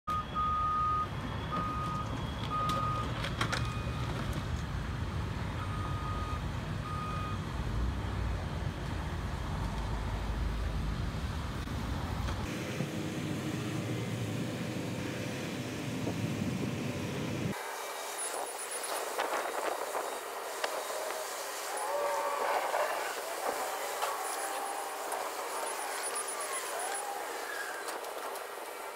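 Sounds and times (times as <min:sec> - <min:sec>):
backup alarm beeps: 0:00.1 - 0:04.1, 0:05.6 - 0:07.4.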